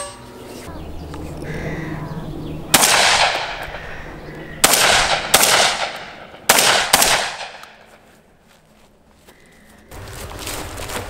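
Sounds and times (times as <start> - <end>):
shotgun shots echoing: 2.7 - 3.9, 4.6 - 8.0.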